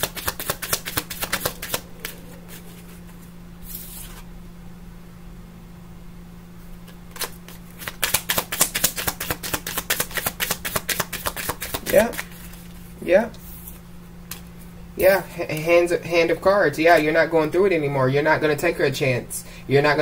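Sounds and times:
cards being shuffled: 0.0 - 4.3, 6.8 - 14.5.

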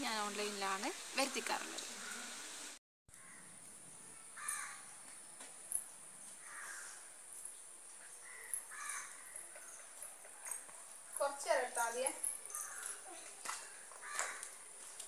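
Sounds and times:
crows cawing: 3.1 - 3.5, 4.4 - 4.8, 6.4 - 7.1, 8.2 - 9.8, 12.5 - 13.0, 13.8 - 14.6.

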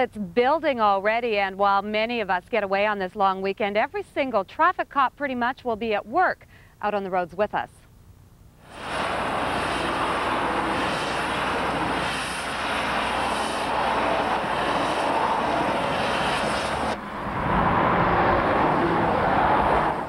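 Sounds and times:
cars driving past on highway: 13.6 - 20.0.

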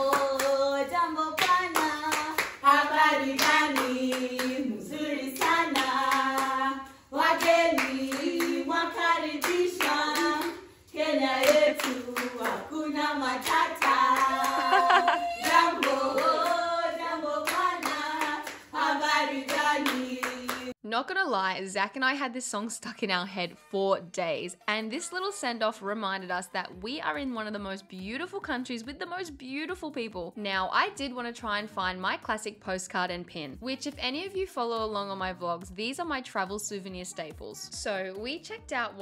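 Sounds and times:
hands clapping: 0.0 - 0.7, 1.4 - 2.6, 3.3 - 4.6, 5.4 - 6.6, 7.3 - 8.6, 9.4 - 10.6, 11.4 - 12.6, 13.3 - 16.6, 17.4 - 18.7, 19.4 - 20.8
women singing together: 0.0 - 20.8.

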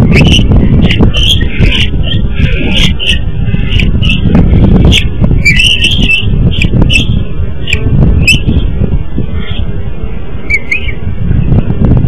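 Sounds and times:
eagle calling: 0.0 - 8.6
loud low rumble: 0.0 - 12.0.

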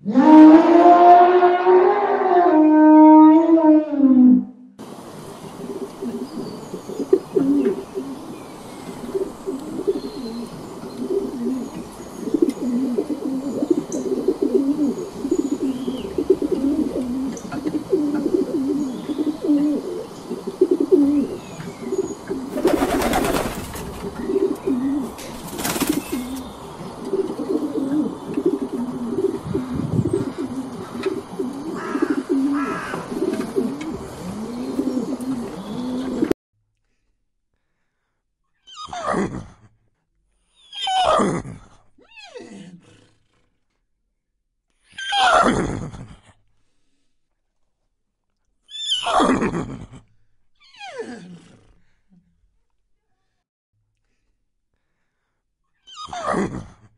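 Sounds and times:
small birds chirping: 5.0 - 36.3
wood pigeons cooing: 5.0 - 36.4.

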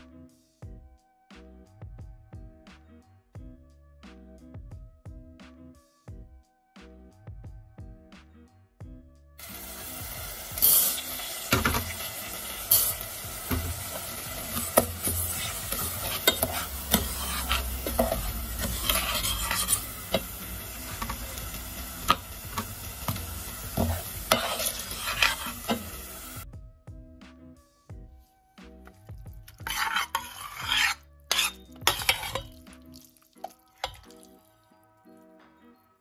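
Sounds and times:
metal spoon scraping a pot: 9.4 - 26.4, 29.5 - 32.7
oil sizzling: 9.4 - 26.4, 29.4 - 34.4.

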